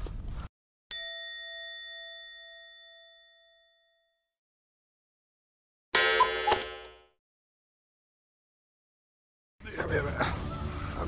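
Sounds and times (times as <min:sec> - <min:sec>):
bell-like chime: 0:00.9 - 0:04.3.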